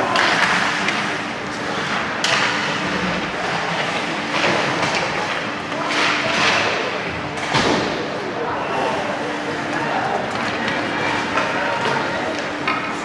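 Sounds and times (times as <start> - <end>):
skates scraping ice: 0.1 - 6.7.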